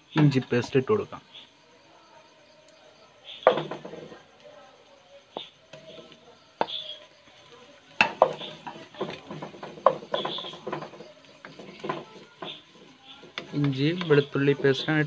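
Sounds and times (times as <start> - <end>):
spatula scraping frying pan: 5.4 - 15.0.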